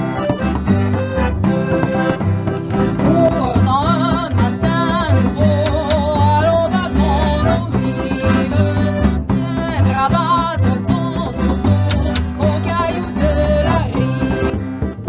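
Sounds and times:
acoustic guitar: 0.0s - 15.0s
button accordion: 0.0s - 15.0s
double bass: 0.0s - 15.0s
woman singing with vibrato: 3.0s - 14.6s.

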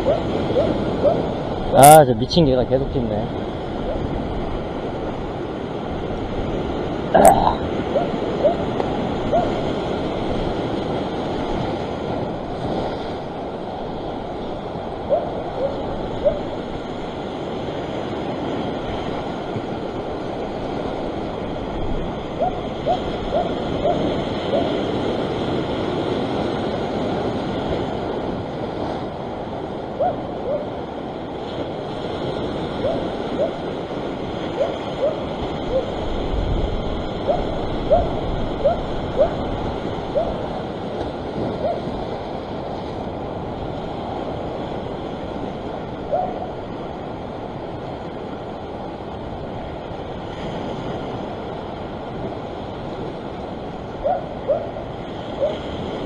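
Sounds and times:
dog barking: 0.0s - 1.2s, 7.9s - 8.7s, 9.3s - 9.6s, 15.1s - 16.5s, 22.4s - 24.8s, 30.0s - 30.7s, 32.8s - 33.6s, 34.6s - 35.9s, 37.3s - 39.4s, 40.2s - 40.4s, 41.6s - 41.8s, 46.1s - 46.5s, 54.0s - 54.7s
ocean surf washing over rocks: 0.0s - 56.0s.

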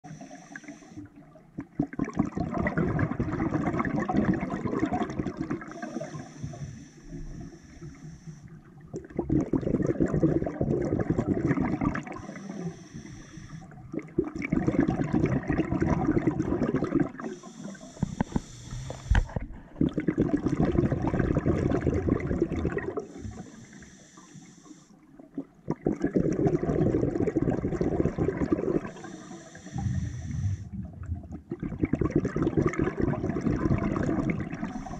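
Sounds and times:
regulator hiss on inhale: 0.0s - 1.1s, 5.5s - 8.7s, 12.1s - 13.8s, 17.2s - 19.8s, 23.0s - 25.0s, 28.8s - 30.8s, 34.6s - 34.9s
exhaled bubbles rushing: 1.1s - 6.3s, 8.7s - 12.4s, 13.7s - 17.7s, 19.2s - 23.4s, 25.2s - 29.0s, 29.6s - 34.9s.

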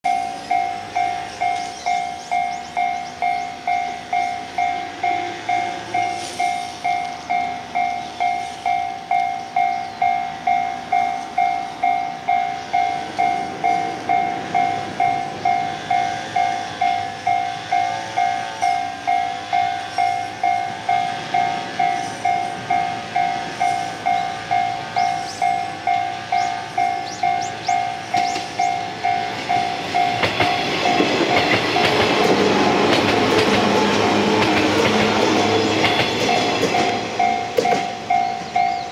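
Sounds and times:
train wheels rumbling over rails: 0.1s - 38.9s
level crossing bell ringing: 36.2s - 38.9s.

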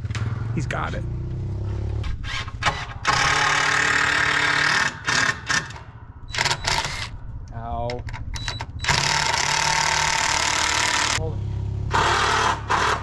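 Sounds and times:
cordless drill driving screw: 2.2s - 7.1s, 8.8s - 11.2s, 11.9s - 13.0s.

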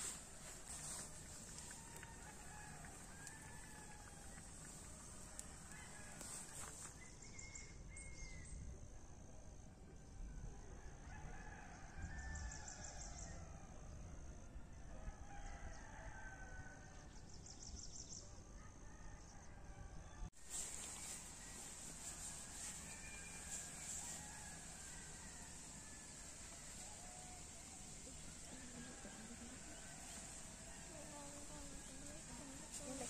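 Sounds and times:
faint rooster crowing: 0.0s - 8.5s, 10.6s - 14.0s, 14.8s - 17.2s, 18.3s - 33.0s
steady high-pitched whine: 20.5s - 33.0s.

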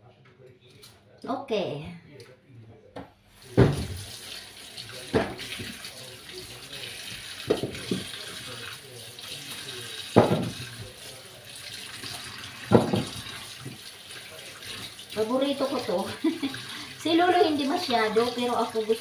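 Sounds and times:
tap running into metal sink: 4.9s - 5.9s, 7.1s - 8.5s, 10.1s - 11.0s, 12.0s - 13.9s.

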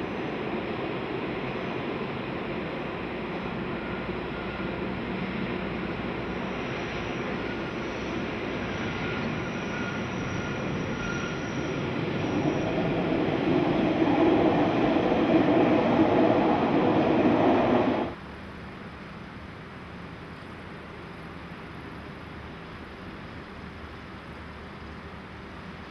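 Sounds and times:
train rumble and wheel noise: 0.0s - 25.9s
thin wheel squeal: 6.3s - 13.1s.

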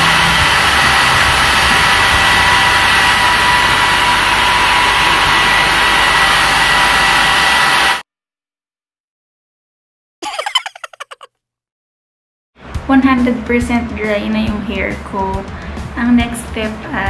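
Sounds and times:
hair dryer running: 0.0s - 8.0s.

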